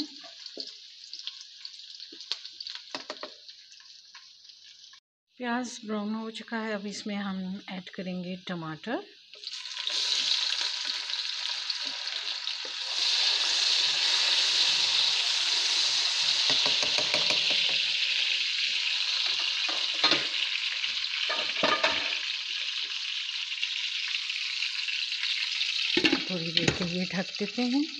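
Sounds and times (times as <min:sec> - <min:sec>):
tomatoes sizzling in hot oil: 0:00.0 - 0:05.0, 0:06.3 - 0:27.9
spatula knocking against pan: 0:16.5 - 0:17.8.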